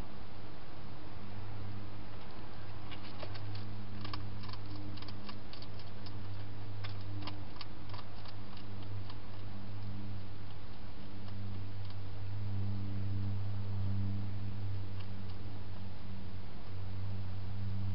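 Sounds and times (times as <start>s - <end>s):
steady low hum: 0.0s - 17.9s
hedgehog chewing clicks: 2.8s - 12.0s.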